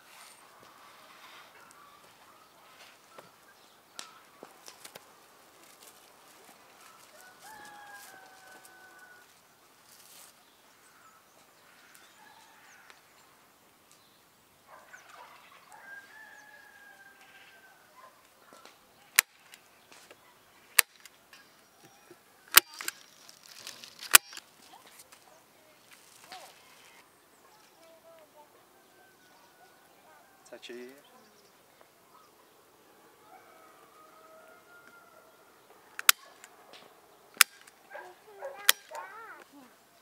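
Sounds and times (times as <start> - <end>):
rooster crowing: 6.8 - 9.3, 12.1 - 13.0, 15.6 - 18.0, 28.5 - 30.6, 33.0 - 36.0.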